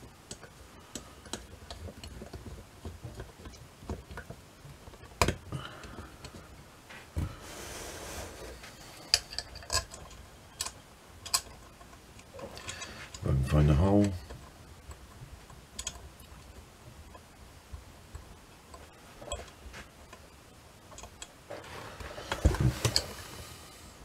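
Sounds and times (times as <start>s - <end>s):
metal rubbing scrape: 7.4s - 9.0s.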